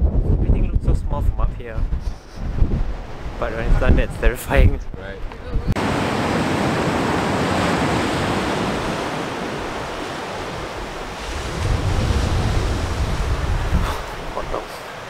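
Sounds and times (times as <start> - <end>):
wind buffeting the microphone: 0.0 - 14.9
surf breaking on a beach: 5.8 - 15.0.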